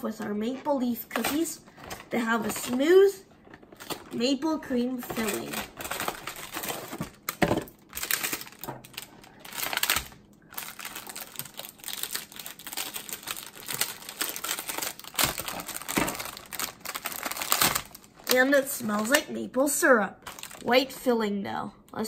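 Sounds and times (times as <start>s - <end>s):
plastic wrapper crinkling: 0.6s - 19.3s, 20.2s - 20.8s
scissors cutting plastic: 8.0s - 19.2s.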